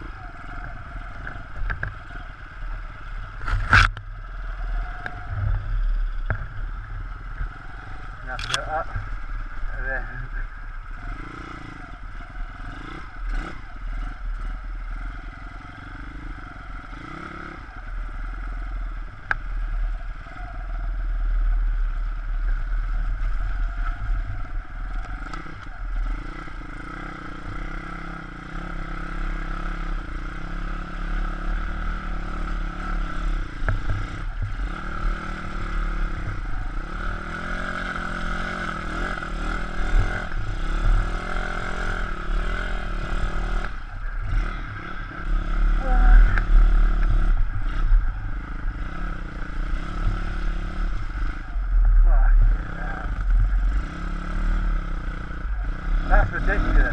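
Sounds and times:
motorbike engine revving: 0.0 - 19.1, 19.9 - 56.9.

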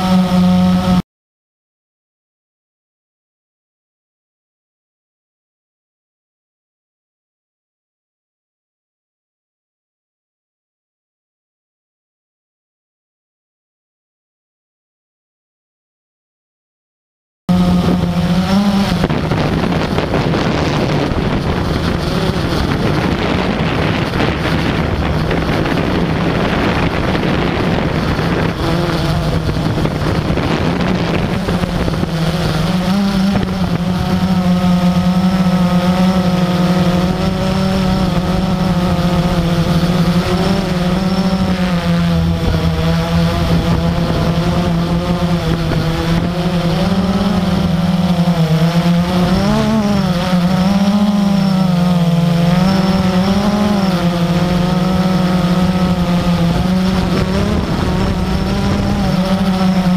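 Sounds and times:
model aircraft motor running: 0.0 - 1.0, 17.5 - 59.9.

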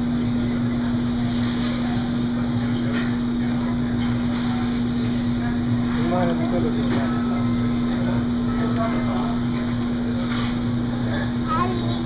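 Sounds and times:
machine hum: 0.0 - 12.0.

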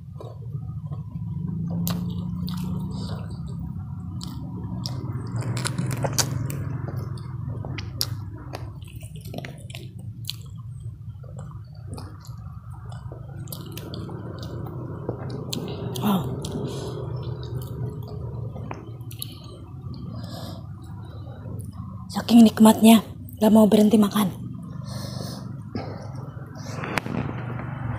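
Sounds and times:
close chewing and mouth sounds: 0.0 - 27.3
low hum: 0.0 - 27.9
mouth smacks and clicks: 1.6 - 21.0.

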